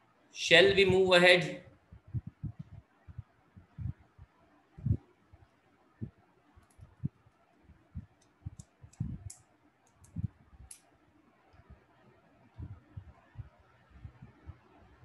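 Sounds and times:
soft low thumps: 1.9 - 5.0, 6.8 - 9.3, 10.1 - 10.4, 12.6 - 14.7
light clicks: 8.1 - 10.9.

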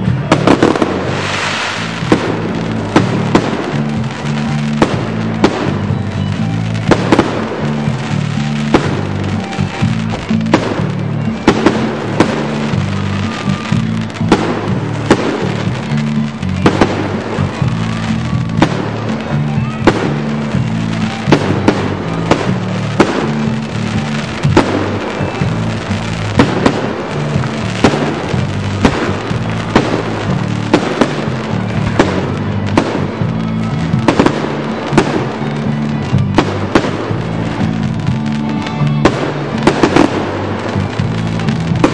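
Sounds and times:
firework shells bursting: 0.0 - 17.8
background music with bass: 0.0 - 41.9.

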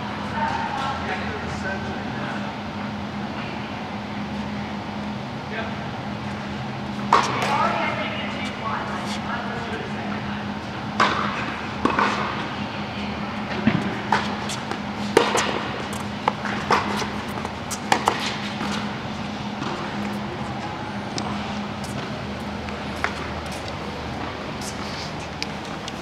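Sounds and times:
low hum: 0.0 - 26.0
tennis balls hit with racquets: 7.0 - 9.9, 10.9 - 12.6, 13.4 - 25.6
tennis balls bouncing on court: 7.0 - 10.0, 10.9 - 24.8.

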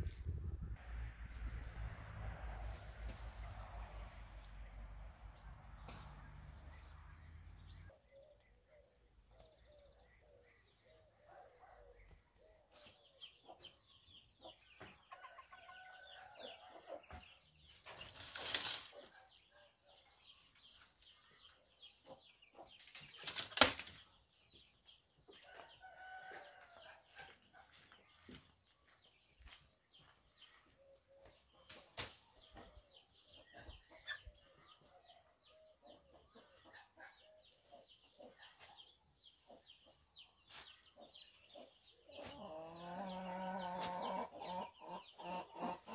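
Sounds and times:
chickens clucking: 21.5 - 23.2, 31.2 - 45.9.

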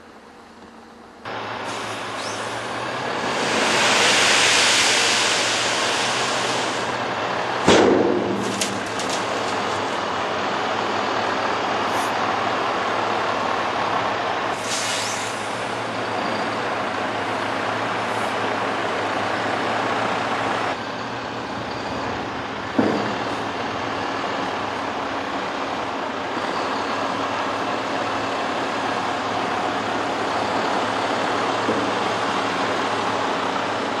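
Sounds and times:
truck diesel engine running: 0.0 - 34.0
air hiss: 1.6 - 7.0, 14.6 - 15.6
sharp thump: 7.6 - 9.6.

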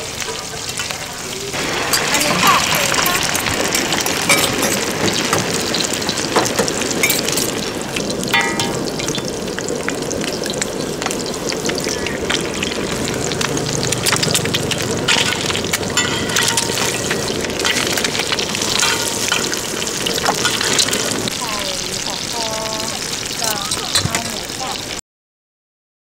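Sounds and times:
omelet sizzling in hot oil: 0.0 - 25.0.

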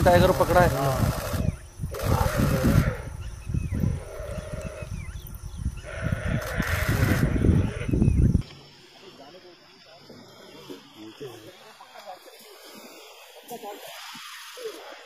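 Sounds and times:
animals growling and grunting: 0.0 - 5.0, 5.8 - 8.1
long noisy animal calls: 0.8 - 5.0, 5.8 - 8.3.

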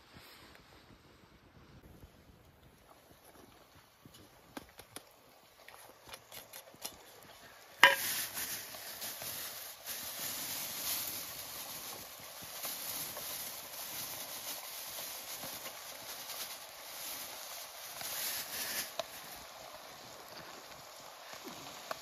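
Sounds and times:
food pouring from plastic bag: 7.8 - 20.1.

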